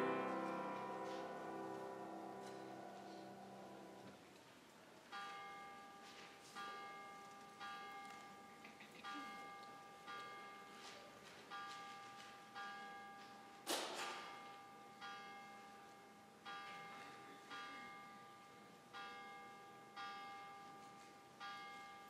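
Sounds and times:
bell tolling: 0:00.0 - 0:04.1.

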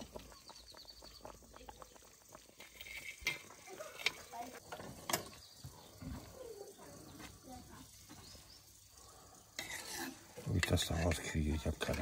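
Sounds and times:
small crackles and pops: 0:00.0 - 0:04.8
cooking juices bubbling: 0:00.0 - 0:12.0.

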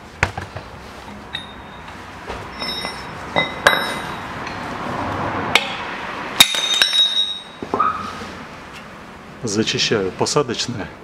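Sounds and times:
hammer striking steel: 0:02.5 - 0:04.6, 0:05.5 - 0:07.9.

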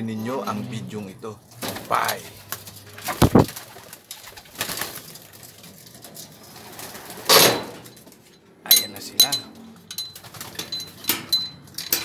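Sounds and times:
loud rustling burst: 0:02.8 - 0:05.0
pigeons cooing: 0:02.8 - 0:05.1
loud thump: 0:03.2 - 0:03.6.

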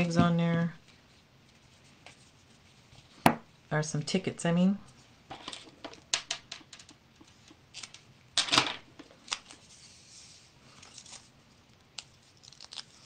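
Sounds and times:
paper rustling: 0:09.0 - 0:13.0.

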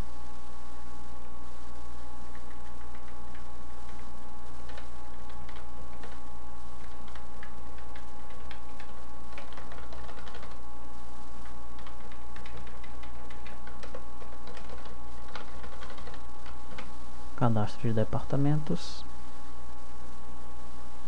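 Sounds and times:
keyboard typing: 0:02.3 - 0:10.6, 0:11.4 - 0:16.9.

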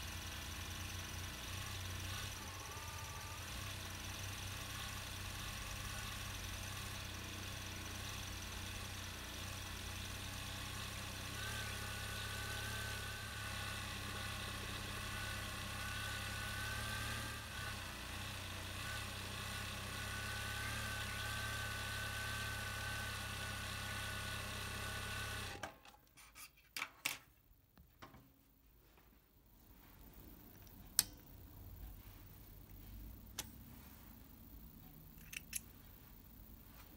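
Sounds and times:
sewing machine whining: 0:00.0 - 0:07.2, 0:11.2 - 0:25.7.

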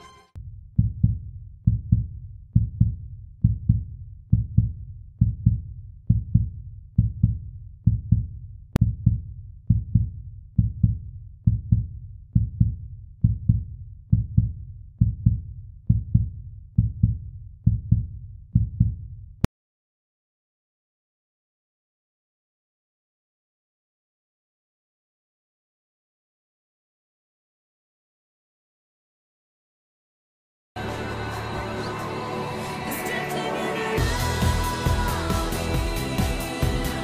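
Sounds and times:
heartbeat-like double thump music: 0:00.4 - 0:19.5, 0:34.0 - 0:37.0.

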